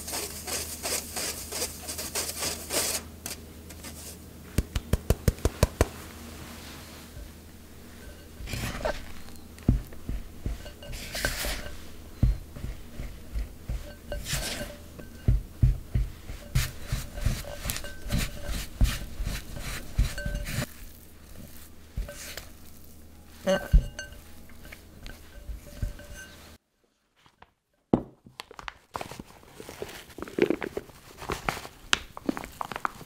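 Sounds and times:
spatula knocking glass bowl: 8.0 - 20.7, 23.5 - 26.4.

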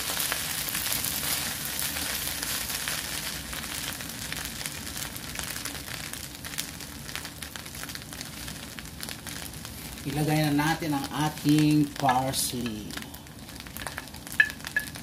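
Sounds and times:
wooden spatula stirring rice: 0.0 - 5.0
rice sizzling in a pan: 0.0 - 15.0.

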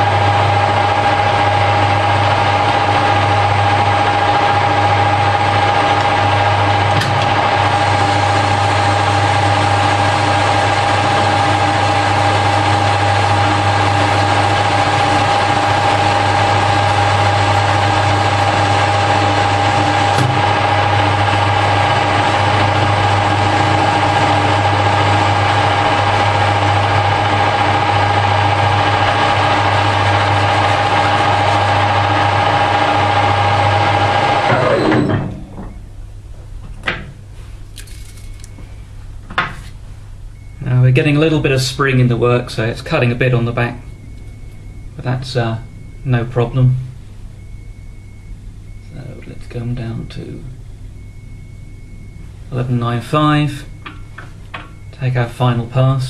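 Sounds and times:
lathe running with high whine: 0.0 - 35.9, 40.3 - 56.0.

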